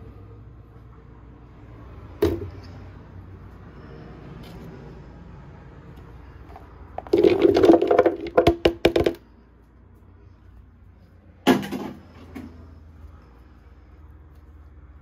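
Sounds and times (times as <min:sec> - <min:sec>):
carrots clattering into blender jar: 0:07.0 - 0:09.2.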